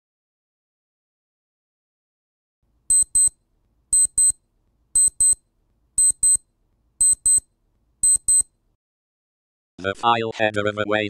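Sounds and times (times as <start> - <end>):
high-pitched electronic beeps: 2.9 - 3.3, 4.0 - 4.4, 5.0 - 5.4, 6.0 - 6.4, 7.0 - 7.4, 8.0 - 8.4.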